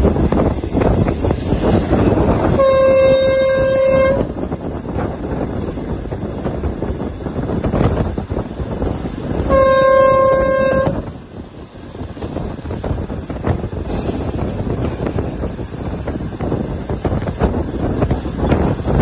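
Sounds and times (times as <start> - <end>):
moving train rumble: 0.0 - 19.0
train horn blasts: 2.4 - 4.3, 9.4 - 11.1.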